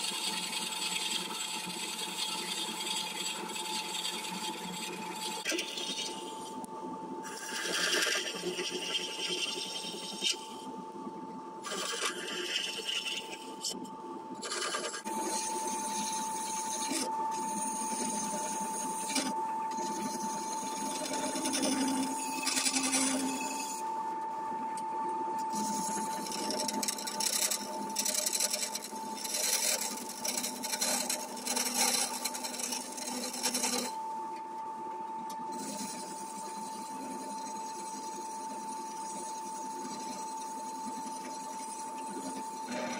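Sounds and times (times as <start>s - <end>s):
wood lathe whining: 0.0s - 6.5s, 7.3s - 10.4s, 11.6s - 13.8s, 14.4s - 23.9s, 25.5s - 34.0s, 35.5s - 42.9s
turning tool scraping wood: 11.7s - 13.8s, 14.4s - 23.8s, 25.5s - 34.0s, 35.5s - 42.9s.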